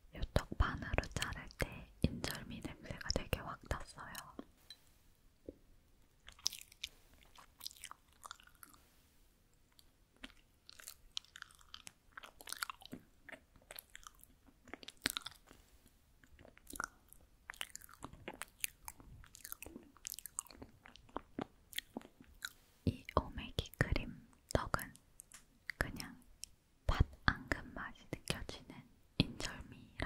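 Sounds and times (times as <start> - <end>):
close chewing with mouth clicks: 6.2 - 8.9, 9.6 - 23.2.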